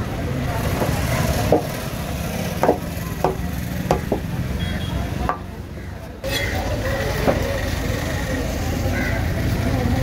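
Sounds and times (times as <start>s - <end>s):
steady background noise: 0.0s - 10.0s
knife chopping on wooden board: 2.6s - 4.3s.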